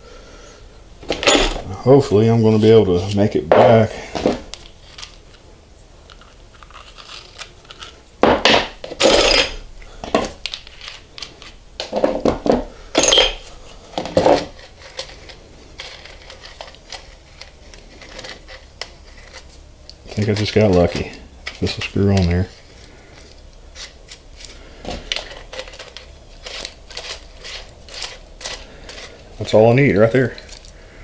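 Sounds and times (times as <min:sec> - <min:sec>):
metal pipe fittings clinking: 0:01.1 - 0:01.7, 0:13.0 - 0:13.5.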